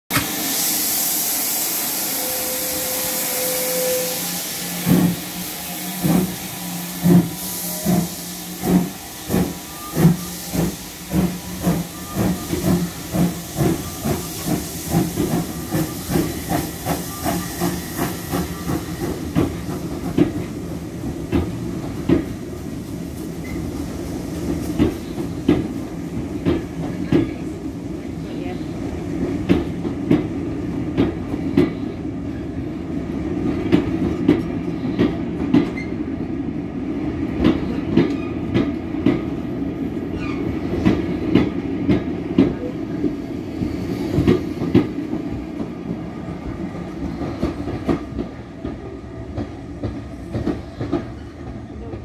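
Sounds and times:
steam locomotive exhaust beats: 0:00.1 - 0:28.0
steam hissing: 0:00.1 - 0:29.8
train wheels clicking: 0:04.6 - 0:27.4, 0:43.6 - 0:52.0.

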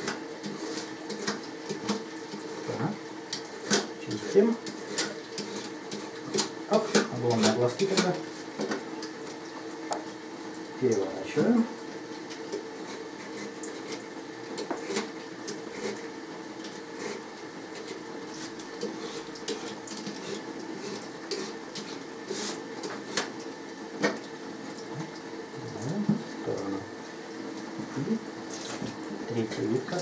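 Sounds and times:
peeler scraping potato skin: 0:14.6 - 0:15.1, 0:17.8 - 0:23.3.

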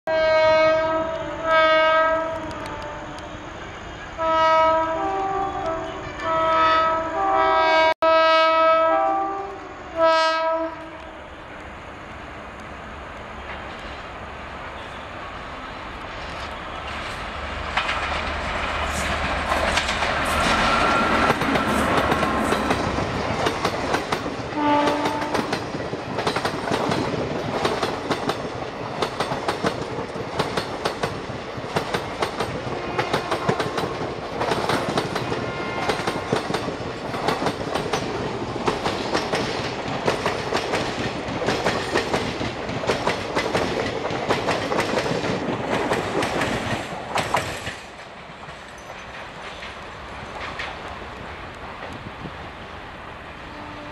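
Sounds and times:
train horn blast: 0:00.1 - 0:11.4, 0:20.2 - 0:22.7, 0:24.5 - 0:25.6, 0:32.8 - 0:34.0, 0:35.3 - 0:36.4, 0:53.4 - 0:53.9
train wheels clattering over rail joints: 0:16.8 - 0:52.1.

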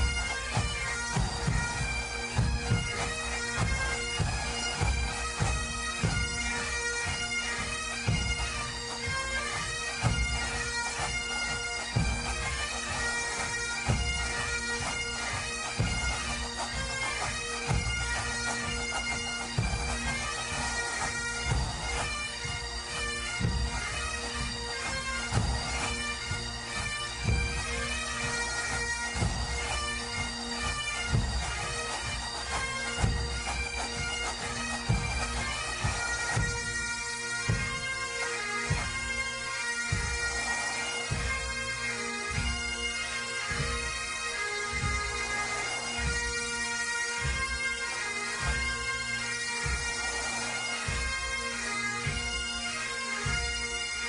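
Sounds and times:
bagpipes playing a march: 0:00.0 - 0:54.0.

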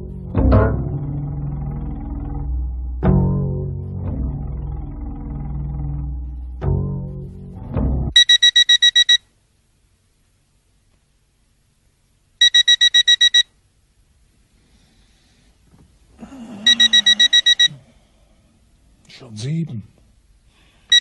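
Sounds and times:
alarm clock beeping: 0:08.2 - 0:09.2, 0:12.4 - 0:13.4, 0:16.6 - 0:17.8.

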